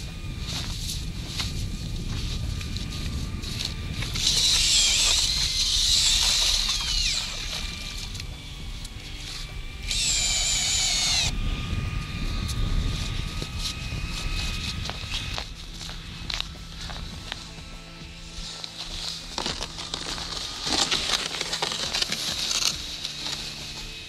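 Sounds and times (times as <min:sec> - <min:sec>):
wind rumble on microphone: 0:00.0 - 0:18.6
ice auger blades scraping: 0:00.0 - 0:24.0.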